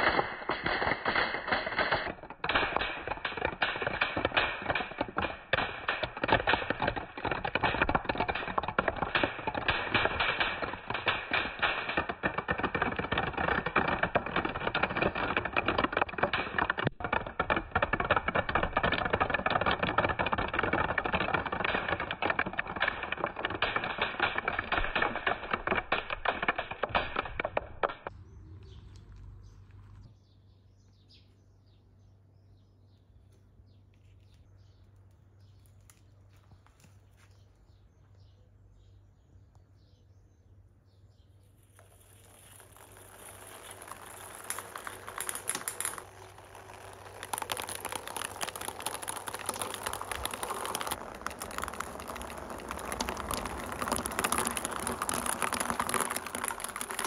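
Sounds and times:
marbles clattering down wooden steps: 0:00.0 - 0:28.2, 0:41.5 - 0:57.0.

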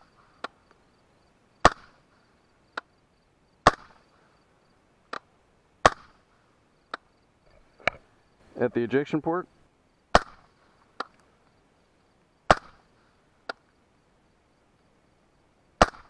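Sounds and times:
suppressed rifle shots: 0:01.6 - 0:02.0, 0:03.6 - 0:04.1, 0:05.8 - 0:06.3, 0:10.1 - 0:11.2, 0:12.5 - 0:13.6, 0:15.8 - 0:16.0
faint sharp crack: 0:15.8 - 0:16.0.

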